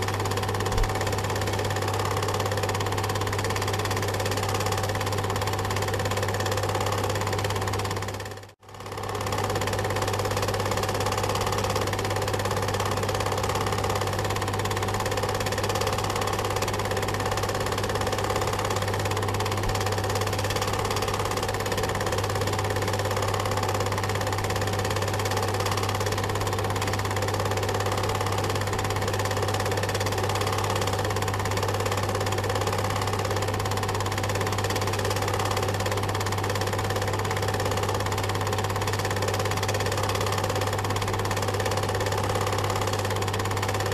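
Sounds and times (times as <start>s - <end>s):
film projector whirring: 0.0s - 43.9s.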